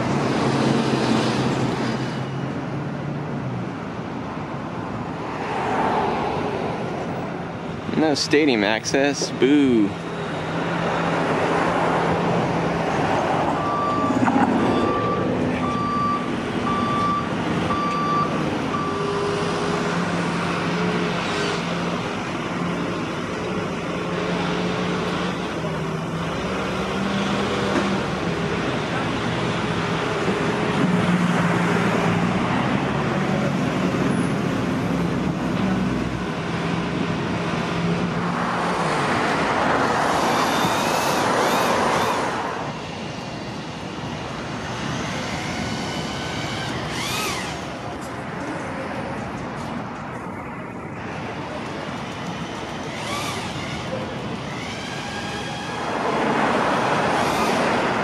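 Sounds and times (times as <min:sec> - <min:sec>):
heavy vehicle engines running: 0:00.0 - 0:58.0
traffic noise: 0:00.0 - 0:58.0
reversing alarm beeping: 0:13.5 - 0:19.5.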